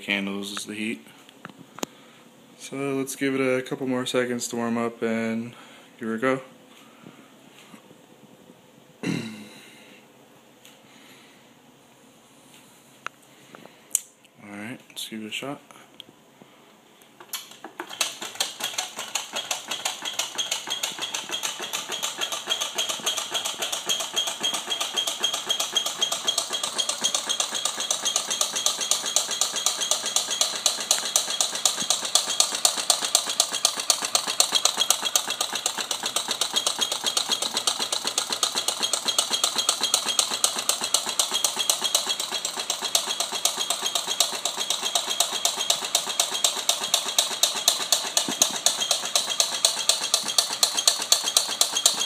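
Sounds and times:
small engine clattering clicks: 17.2 - 52.0.

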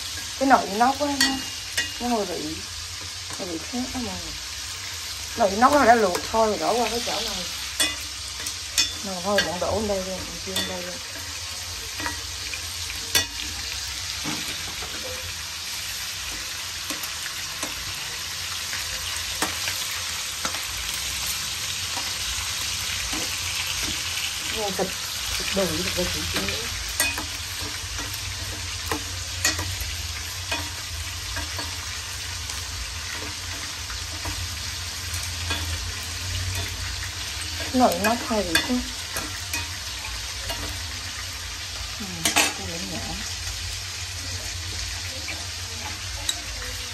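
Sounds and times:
meat sizzling in hot oil: 0.0 - 46.9
metal tongs clicking on pot: 1.0 - 2.0, 5.6 - 15.2, 15.9 - 21.0, 21.8 - 42.8.

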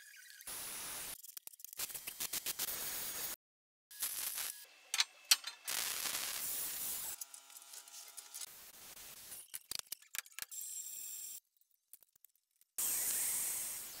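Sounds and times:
sharp metal clank: 4.9 - 5.7.

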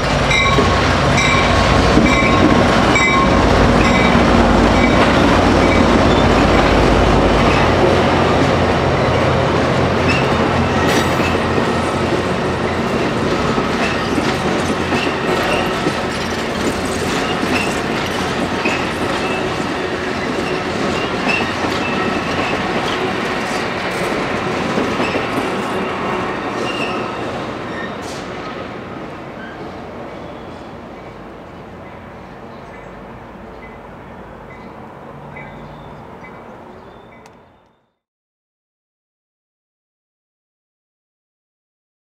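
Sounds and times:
diesel locomotive rumble: 0.0 - 28.6
train rolling rumble: 0.0 - 37.5.

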